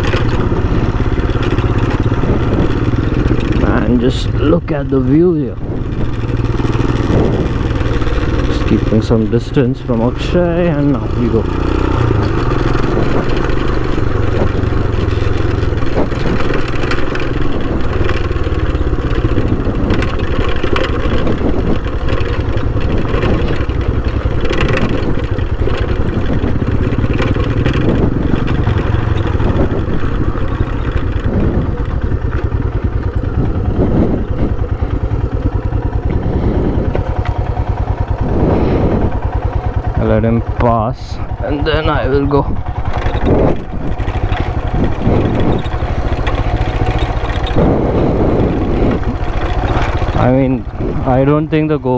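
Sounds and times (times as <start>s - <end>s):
motorcycle engine running: 0.0s - 51.9s
motorcycle knocking and rattling: 0.0s - 51.9s.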